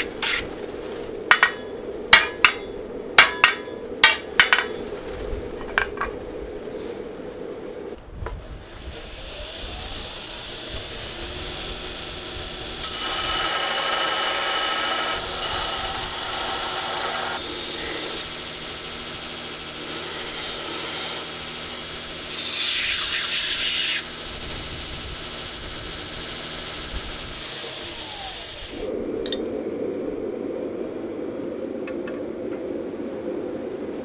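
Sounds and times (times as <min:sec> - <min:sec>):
steel grinding on abrasive belt: 0:08.7 - 0:28.8
belt grinder motor running: 0:09.0 - 0:28.8.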